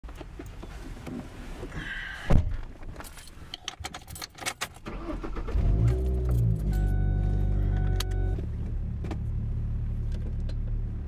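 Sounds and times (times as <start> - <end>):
keys jingling: 6.1 - 7.0.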